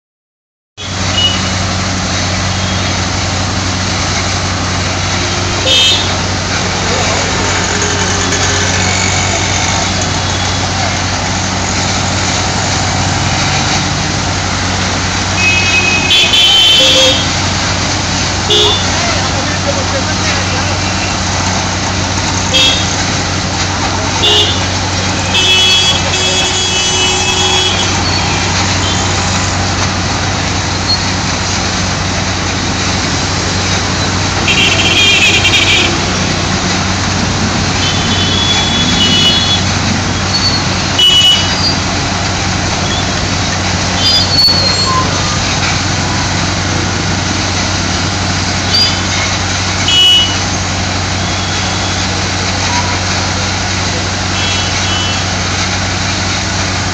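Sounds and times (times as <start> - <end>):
car horn beeps: 0.8 - 1.6, 5.3 - 6.3, 15.4 - 17.4, 18.5 - 19.0, 22.5 - 23.0, 24.2 - 29.2, 34.4 - 36.0, 37.8 - 39.7, 40.3 - 41.8, 49.8 - 50.5, 51.2 - 52.1, 54.4 - 55.3.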